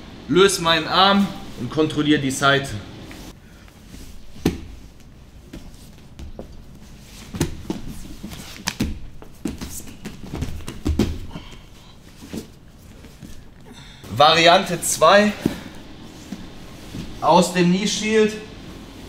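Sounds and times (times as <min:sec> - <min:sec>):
bodies thudding on foam mats: 0:04.1 - 0:14.1, 0:15.3 - 0:17.2.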